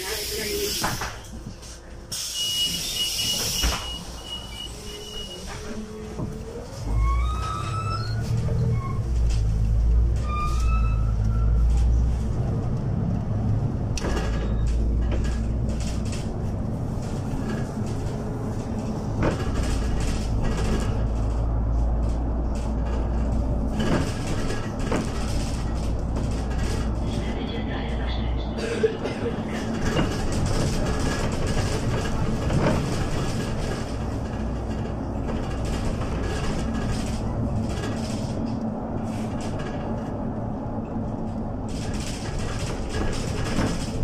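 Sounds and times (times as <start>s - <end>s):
bus engine rumble: 0.0s - 44.0s
knocks and rattles: 14.0s - 27.0s, 29.6s - 38.6s, 41.3s - 44.0s.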